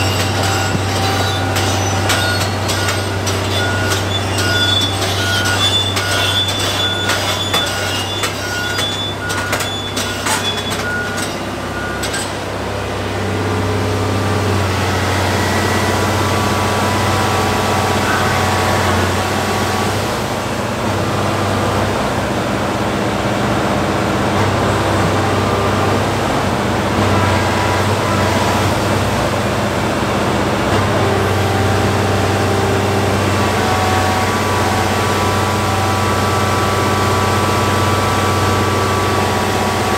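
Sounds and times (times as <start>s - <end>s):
pulsing warning beep: 0.0s - 12.3s
hydraulic sound: 0.0s - 12.4s
sharp metal clanking: 0.0s - 12.4s
excavator diesel engine droning: 0.0s - 39.9s.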